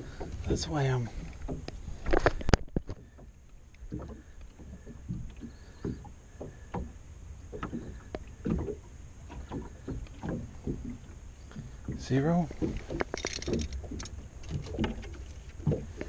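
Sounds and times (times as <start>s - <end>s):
gear clattering in boat: 0.0s - 16.0s
knocks and short rattles: 12.5s - 15.9s.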